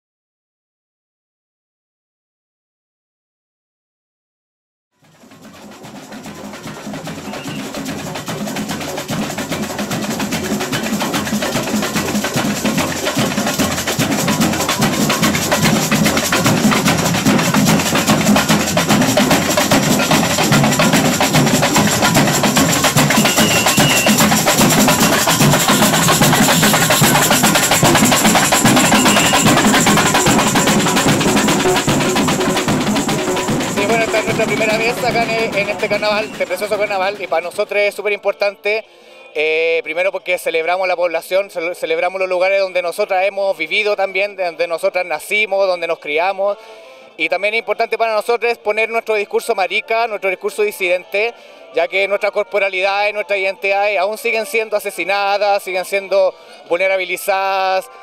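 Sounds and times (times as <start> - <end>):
percussion band drumming: 5.0 - 37.8.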